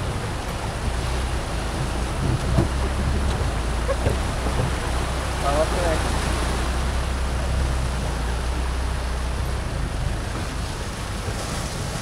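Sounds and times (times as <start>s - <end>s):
shallow river rushing: 0.0s - 12.0s.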